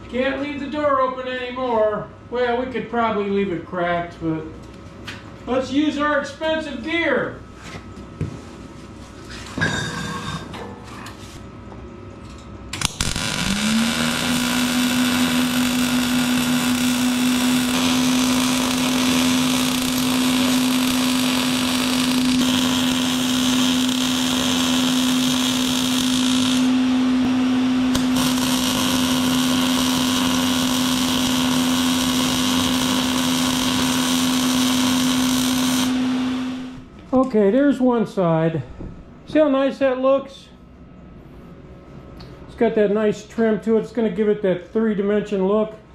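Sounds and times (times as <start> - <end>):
welding sizzling hiss: 12.8 - 26.8, 27.9 - 36.8
fume extractor motor humming: 12.8 - 36.9.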